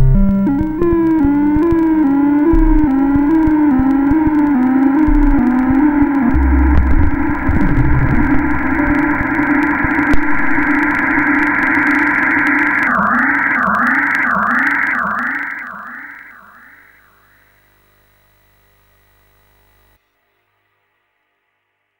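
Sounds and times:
electronic chip music chord: 0:00.0 - 0:17.0.

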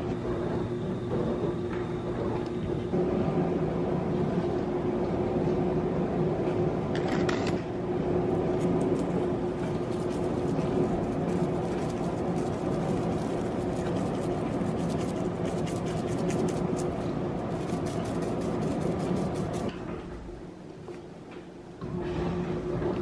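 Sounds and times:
steady hum: 0:00.0 - 0:23.0
pepper mill grinding: 0:08.3 - 0:19.7.

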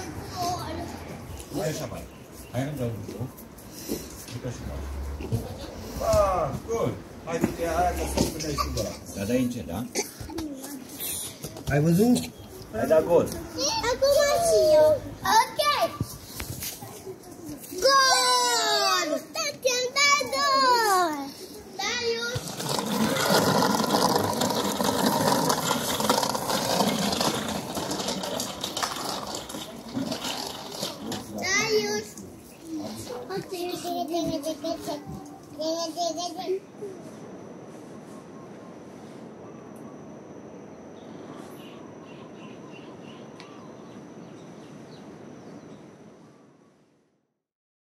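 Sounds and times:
bicycle rattling over concrete: 0:22.2 - 0:32.1.

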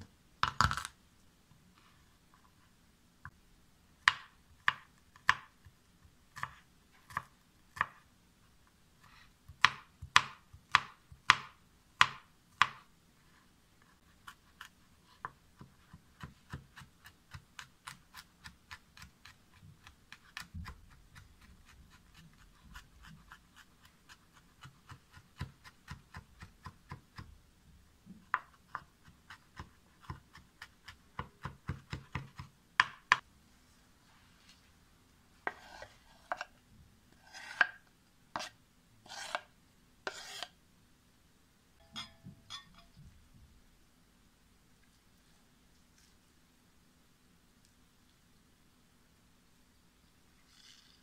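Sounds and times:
knife chopping on cutting board: 0:28.3 - 0:33.2, 0:35.4 - 0:36.5, 0:37.2 - 0:37.8, 0:39.1 - 0:39.5, 0:40.1 - 0:40.5.

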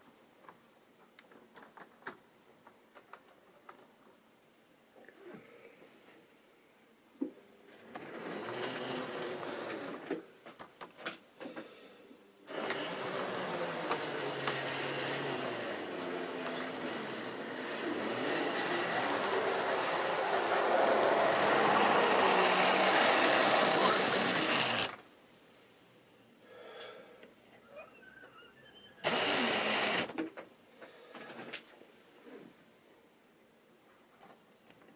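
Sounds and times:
model train motor whirring: 0:08.2 - 0:10.0, 0:12.5 - 0:25.0, 0:29.0 - 0:30.2.

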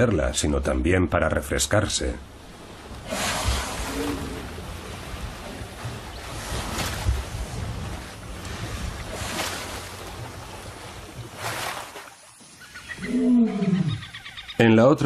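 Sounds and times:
elephants splashing in water: 0:02.4 - 0:12.4
elephant call: 0:12.6 - 0:14.6.

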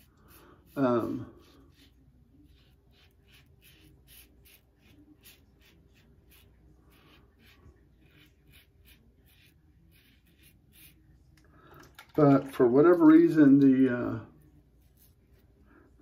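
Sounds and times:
razor scratching stubble: 0:00.0 - 0:11.0.

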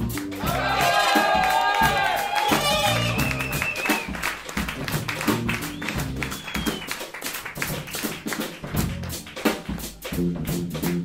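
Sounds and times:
bass line: 0:00.0 - 0:06.8, 0:08.7 - 0:11.0
drum kit strokes: 0:00.0 - 0:11.0
jazz band playing blues: 0:00.0 - 0:11.0.

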